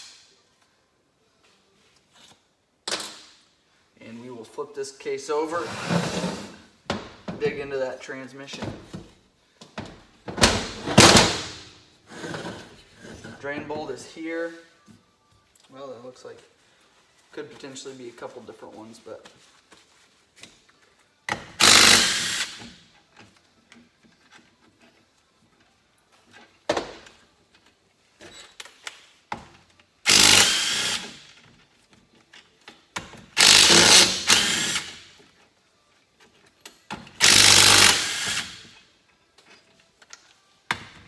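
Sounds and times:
impact driver spinning bolts: 30.1 - 31.2, 33.4 - 35.0, 37.2 - 38.6.

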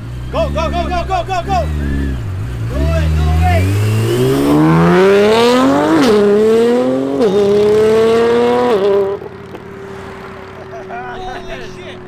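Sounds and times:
car engine accelerating hard: 0.0 - 12.0.

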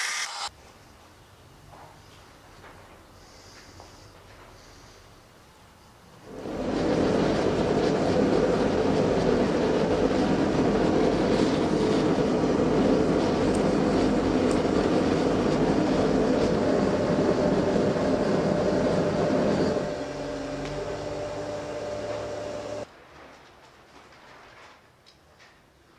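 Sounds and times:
gas forge burner rushing: 6.2 - 22.9
steady hum: 6.2 - 22.9.

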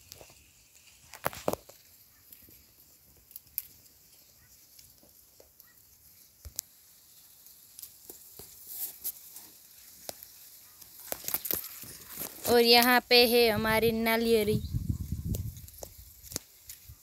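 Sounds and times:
leaves brushing against phone: 0.0 - 17.0
leaves rustling and crackling: 0.0 - 17.0.

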